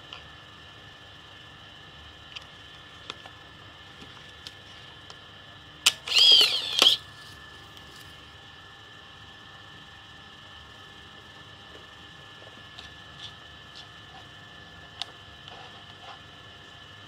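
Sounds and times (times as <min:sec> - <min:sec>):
film-advance motor whirring: 0:05.8 - 0:07.4.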